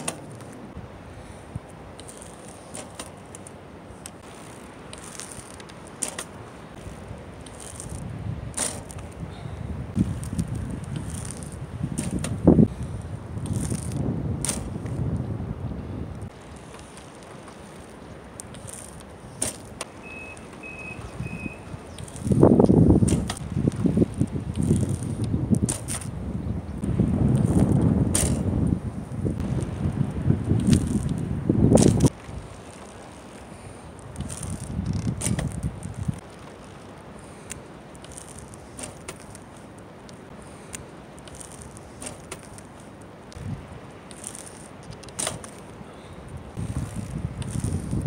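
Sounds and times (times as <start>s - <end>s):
bike clicks and rattles: 0.0s - 0.6s, 1.2s - 15.2s, 16.2s - 26.2s, 27.2s - 28.7s, 29.4s - 48.0s
bicycle rolling on concrete: 0.0s - 48.0s
short high beeps: 20.0s - 21.7s
knocks from bike: 28.1s - 28.4s.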